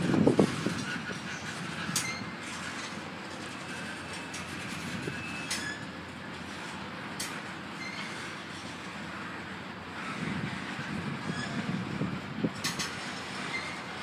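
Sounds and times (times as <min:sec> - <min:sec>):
steel wheels rumbling on rail: 0:00.0 - 0:14.0
faint wheel squeal: 0:00.8 - 0:06.0, 0:07.8 - 0:09.4, 0:10.0 - 0:12.0, 0:12.6 - 0:14.0.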